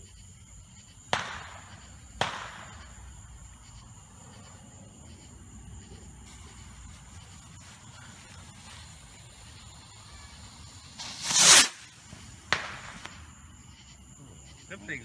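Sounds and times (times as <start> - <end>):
high insect trill: 0.0 - 15.0
sharp bang with echo: 1.1 - 2.8.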